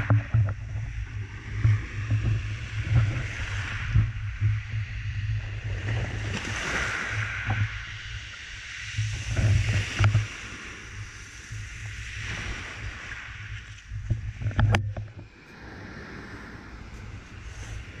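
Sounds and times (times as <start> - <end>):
surf washing over pebbles: 0.0 - 18.0
wind rumble on microphone: 0.0 - 18.0.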